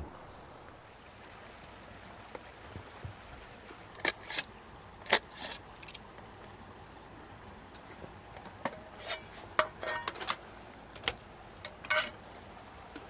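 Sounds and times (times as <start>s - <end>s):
steady low hiss: 0.0s - 13.0s
metal stove clicks and clinks: 8.7s - 10.4s, 11.0s - 12.2s.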